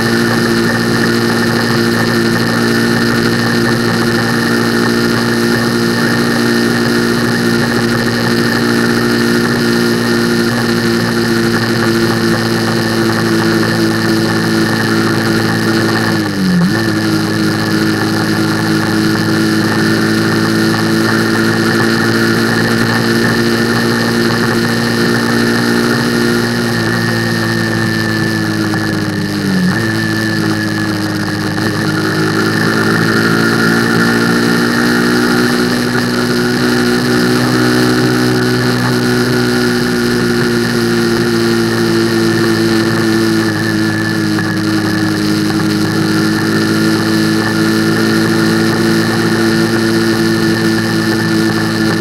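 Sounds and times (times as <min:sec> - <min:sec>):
motorcycle engine running: 0:00.0 - 0:52.0
wind and road rush: 0:00.0 - 0:52.0.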